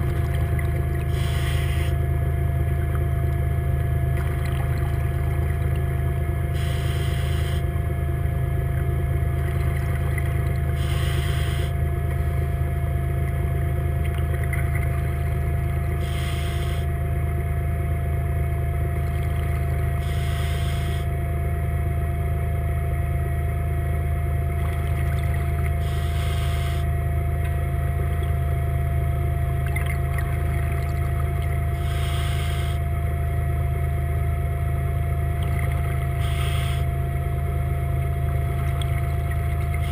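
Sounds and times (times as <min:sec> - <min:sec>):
regulator bubbles hissing: 0:00.0 - 0:02.2, 0:02.8 - 0:07.9, 0:08.8 - 0:17.0, 0:19.0 - 0:21.1, 0:24.5 - 0:28.5, 0:29.5 - 0:32.9, 0:35.2 - 0:39.9
underwater electric motor hum: 0:00.0 - 0:39.9.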